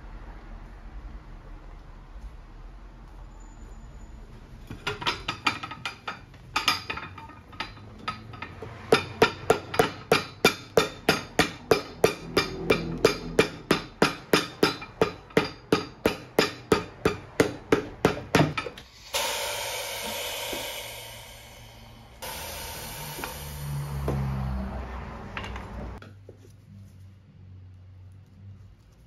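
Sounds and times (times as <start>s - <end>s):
hammer striking boot sole: 8.9s - 18.8s
steady hiss: 18.8s - 24.6s.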